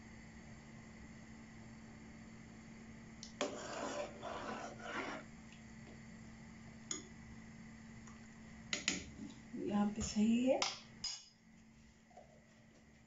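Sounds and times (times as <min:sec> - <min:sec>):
faint steady hum: 0:00.0 - 0:13.0
spoon scraping and swishing water: 0:03.3 - 0:05.3.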